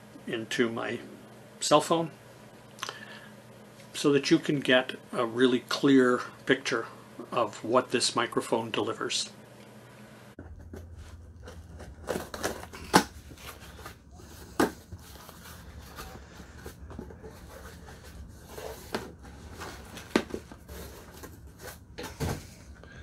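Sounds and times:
cardboard and plastic rustling: 0:10.4 - 0:22.8.

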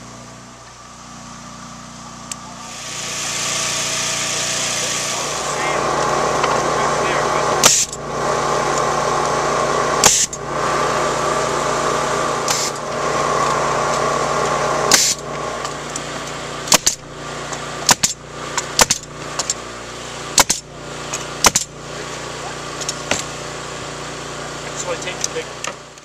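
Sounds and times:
motor humming: 0:00.0 - 0:26.0
nailer shots with air hiss: 0:02.6 - 0:05.6, 0:07.6 - 0:08.0, 0:10.0 - 0:10.4, 0:12.4 - 0:12.9, 0:14.9 - 0:19.6, 0:20.3 - 0:21.7.

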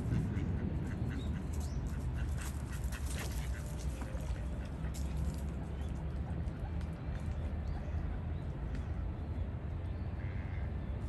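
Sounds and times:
ducks quacking: 0:00.0 - 0:05.2, 0:10.2 - 0:10.7
steady low rumble: 0:00.0 - 0:10.6.

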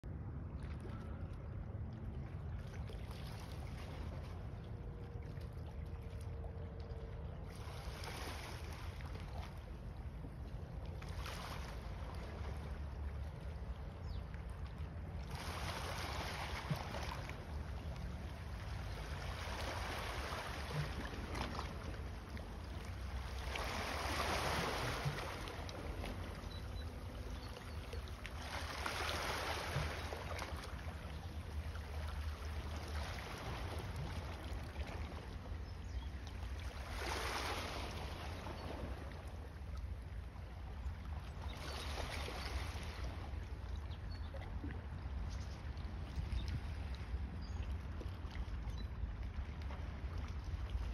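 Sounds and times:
steady low rumble: 0:00.0 - 0:07.9
small waves washing on rocks: 0:23.2 - 0:26.2, 0:28.4 - 0:30.6.

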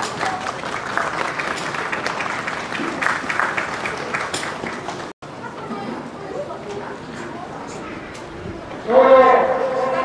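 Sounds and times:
crowd applauding: 0:00.0 - 0:05.1.

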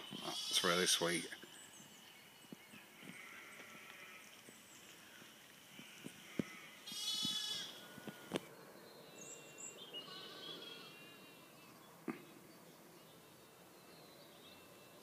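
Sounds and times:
sheep bleating: 0:00.2 - 0:00.8, 0:05.8 - 0:08.4, 0:10.0 - 0:11.4.

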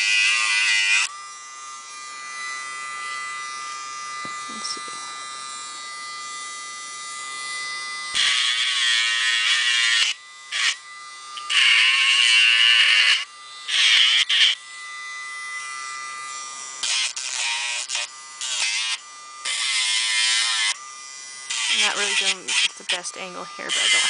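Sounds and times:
rotary tool whining: 0:00.0 - 0:24.0
sanding drum grinding nail: 0:07.3 - 0:10.8, 0:16.4 - 0:24.0.

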